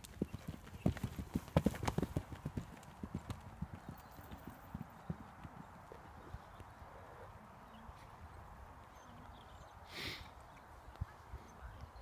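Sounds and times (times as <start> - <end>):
horse hooves thudding on sand: 0.0 - 6.7.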